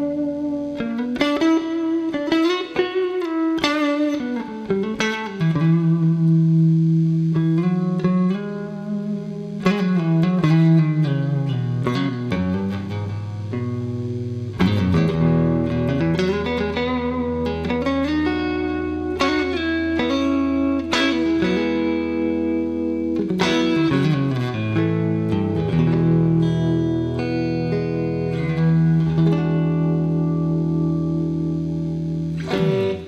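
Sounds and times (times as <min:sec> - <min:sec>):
electric guitar notes and chords: 0:00.0 - 0:33.0.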